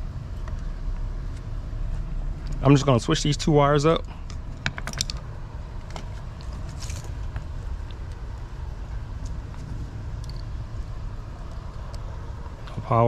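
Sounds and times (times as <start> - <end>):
low outdoor rumble: 0.0 - 13.0
hand tools clicking and rustling: 4.2 - 7.4.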